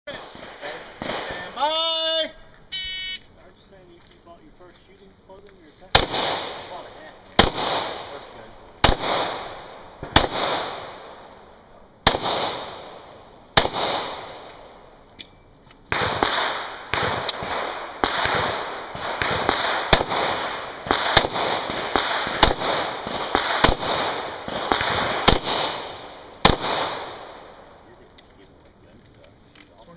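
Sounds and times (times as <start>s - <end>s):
pistol shots with echo: 0.1s - 1.6s, 5.9s - 14.9s, 15.9s - 27.8s.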